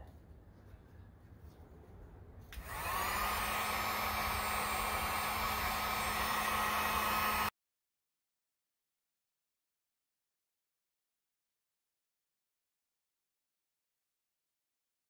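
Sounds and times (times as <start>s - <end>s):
heat gun fan blowing: 2.5s - 7.5s.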